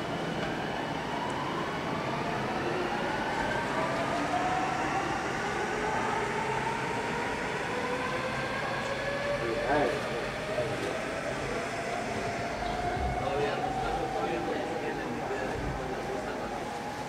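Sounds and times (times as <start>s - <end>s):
train rumble: 0.0s - 17.0s.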